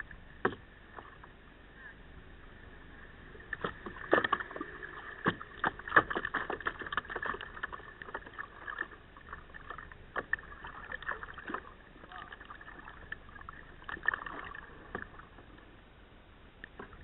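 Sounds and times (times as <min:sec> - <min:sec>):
waves splashing against kayak: 0:02.6 - 0:15.8.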